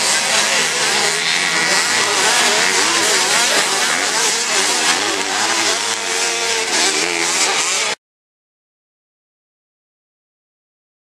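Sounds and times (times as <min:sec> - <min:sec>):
quad engines revving: 0:00.0 - 0:08.0.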